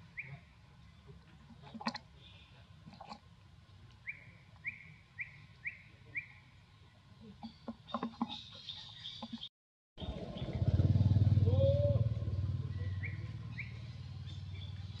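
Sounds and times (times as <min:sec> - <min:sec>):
high chirping calls: 0:12.6 - 0:15.0.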